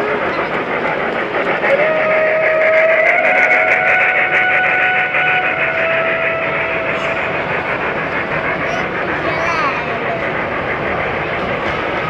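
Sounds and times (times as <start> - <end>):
fast even ticking of train: 0.0 - 12.0
model train whistle: 1.7 - 7.2.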